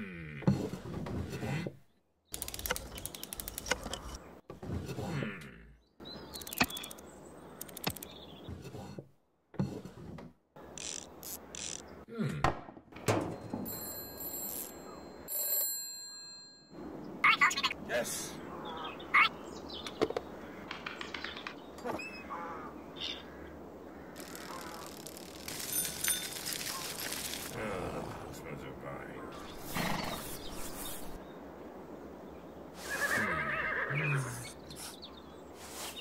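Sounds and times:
telephone bell ringing: 13.7 - 16.8.

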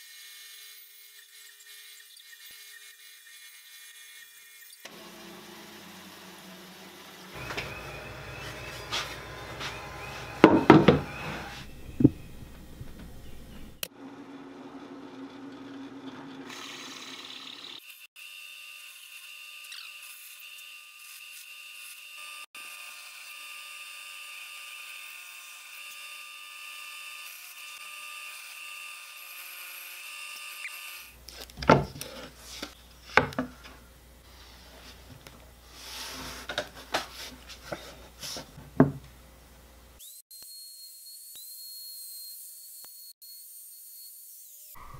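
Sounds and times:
drill press whining: 4.8 - 13.8
wood knocks and thuds: 10.4 - 11.2, 31.6 - 32.0, 38.6 - 39.1.

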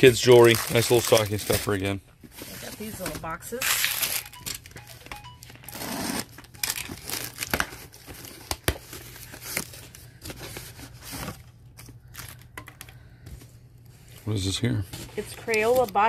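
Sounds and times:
packing tape tearing: 0.0 - 1.9, 3.0 - 4.8, 5.6 - 12.5, 15.2 - 16.0.

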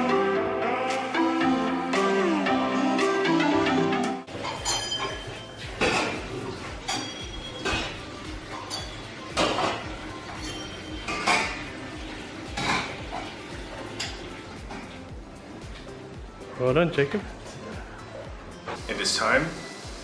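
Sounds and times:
brass bowls clinking on plates: 4.3 - 11.7.

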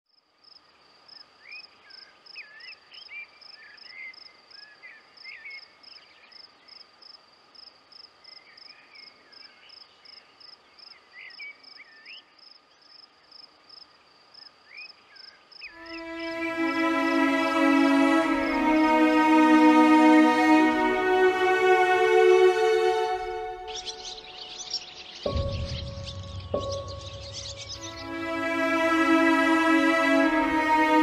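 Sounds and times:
cricket chirping: 0.1 - 16.8, 23.6 - 28.6.

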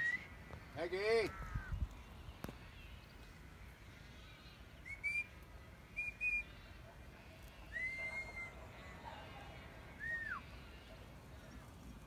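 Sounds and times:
shepherd's whistle: 0.0 - 0.3, 4.8 - 5.3, 6.0 - 6.5, 7.7 - 8.6, 10.0 - 10.4.

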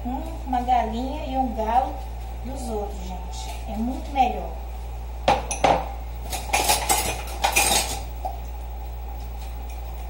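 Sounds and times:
steady low hum: 0.0 - 10.0
dishes clinking in a sink: 5.3 - 8.0.

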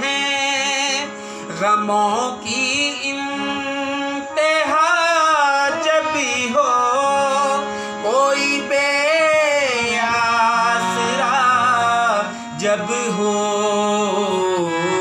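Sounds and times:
man singing devotional song: 0.0 - 15.0.

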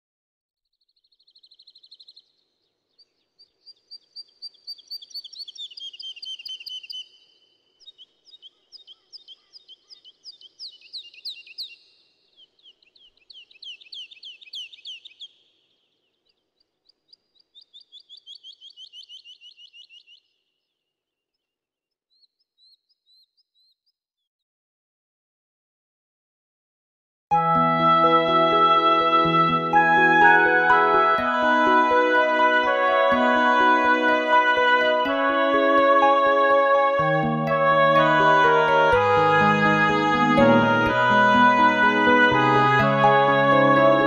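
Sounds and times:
songbirds trilling and chirping: 0.8 - 24.0.

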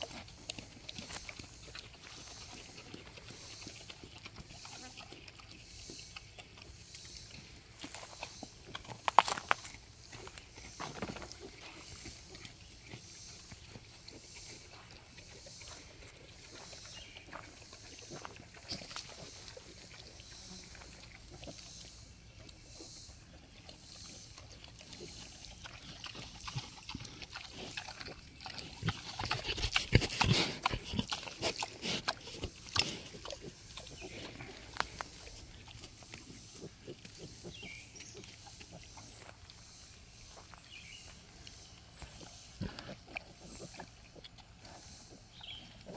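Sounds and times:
pigs grunting: 0.0 - 39.6, 41.9 - 45.9
crunching clicks of twigs: 5.8 - 13.8, 26.1 - 40.5.

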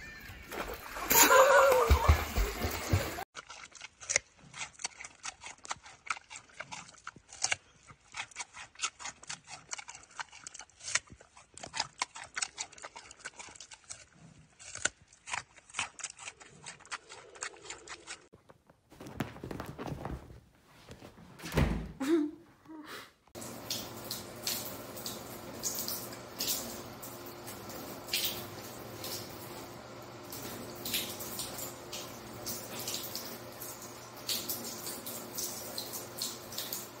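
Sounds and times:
thin stream of water running: 0.0 - 3.3, 23.3 - 37.0
thumps: 18.4 - 22.0.

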